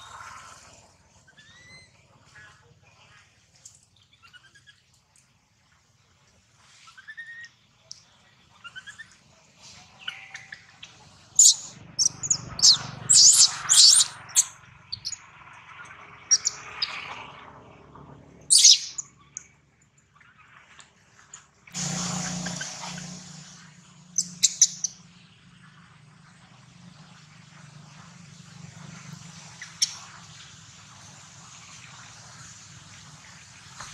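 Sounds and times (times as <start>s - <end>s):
baby macaque screaming: 1.4s - 1.9s, 11.4s - 15.2s, 18.5s - 19.0s
soft rising squeaks: 21.8s - 25.0s.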